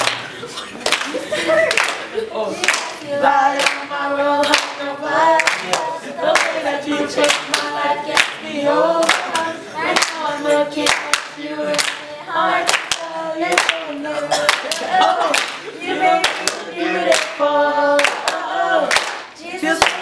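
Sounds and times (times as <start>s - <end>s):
hand claps: 0.0s - 0.2s, 0.8s - 2.0s, 9.0s - 9.4s, 10.8s - 12.0s, 12.7s - 15.6s, 18.0s - 20.0s
young voices singing in unison: 1.2s - 20.0s.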